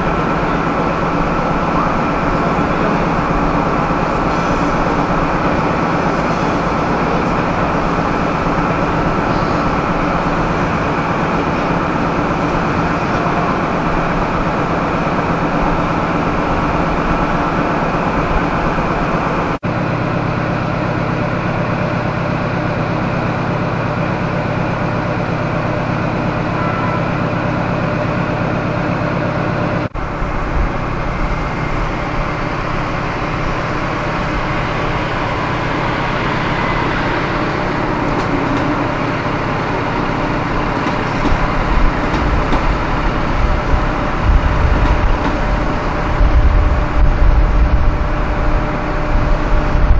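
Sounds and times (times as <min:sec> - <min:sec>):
diesel locomotive low hum: 0:00.0 - 0:49.9
train running noise: 0:00.0 - 0:49.9.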